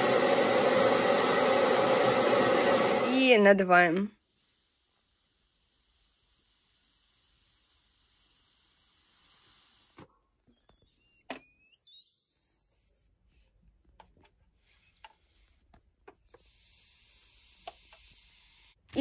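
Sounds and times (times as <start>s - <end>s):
squeaky crackle sliding in pitch: 10.5s - 13.1s.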